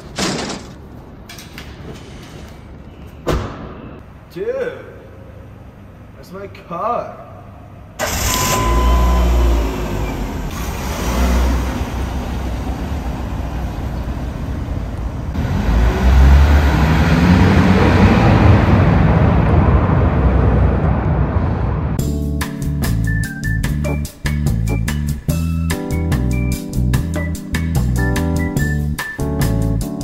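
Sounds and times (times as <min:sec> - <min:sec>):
car engine revving and accelerating: 0:08.0 - 0:13.5, 0:15.3 - 0:22.0.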